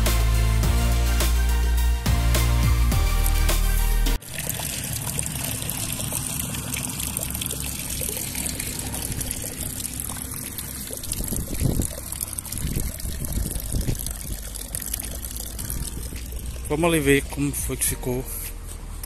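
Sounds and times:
water pouring into tank: 0:04.2 - 0:17.8
low bumps: 0:05.9 - 0:19.0.

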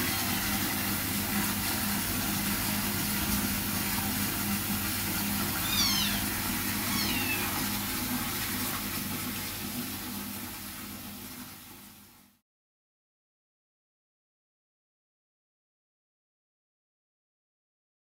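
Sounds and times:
kittens mewing: 0:05.5 - 0:07.8.

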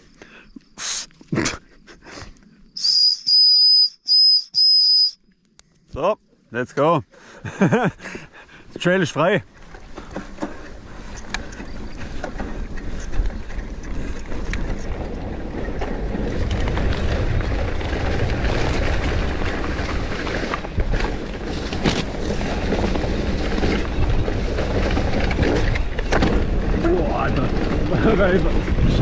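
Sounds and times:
bike tyres rumbling on dirt: 0:07.4 - 0:29.0
bike knocks and rattles: 0:09.5 - 0:29.0
wind on microphone: 0:11.0 - 0:29.0.

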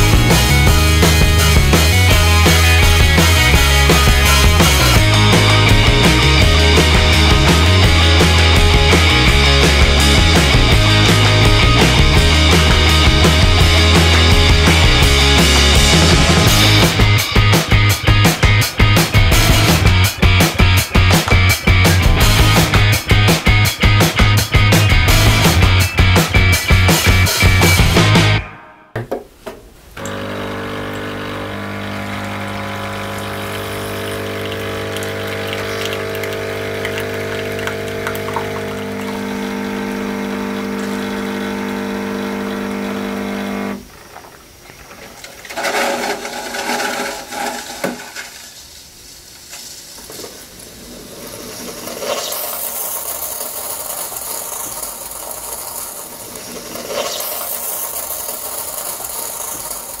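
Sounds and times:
coffee machine pump humming: 0:30.0 - 1:00.0
coffee machine spluttering: 0:30.0 - 1:00.0
steam hissing and spitting: 0:45.6 - 1:00.0.

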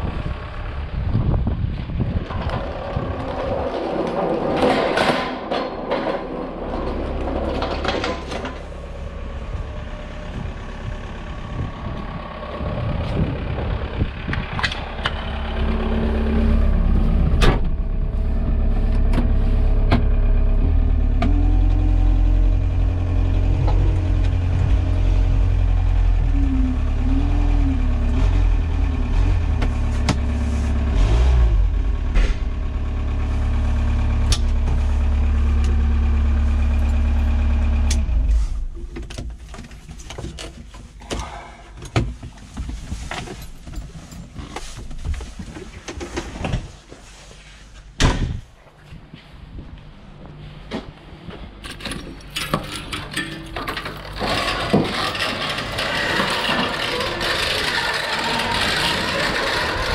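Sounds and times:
forklift engine running: 0:00.0 - 0:40.0, 0:49.5 - 0:59.9
handling knocks and rustling: 0:38.4 - 0:57.5.

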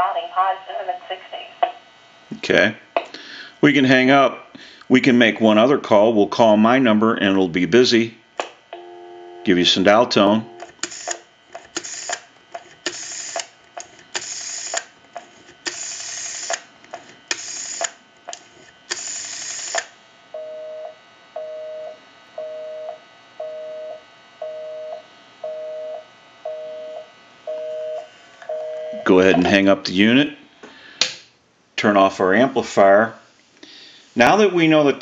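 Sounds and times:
telephone busy signal beeps: 0:08.8 - 0:09.5, 0:20.4 - 0:29.5
rotary phone dial whirring and clicking: 0:10.5 - 0:19.9.

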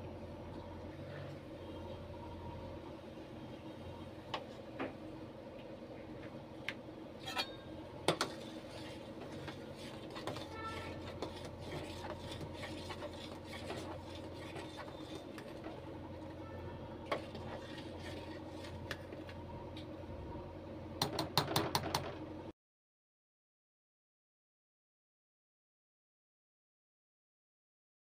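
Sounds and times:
steady low hum: 0:00.0 - 0:21.1
spoon scraping metal pot: 0:07.2 - 0:15.8, 0:17.1 - 0:19.0.

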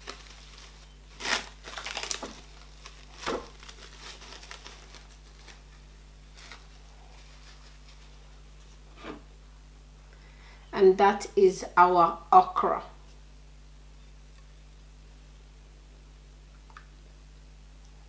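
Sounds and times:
cling film crinkling: 0:00.0 - 0:08.7.

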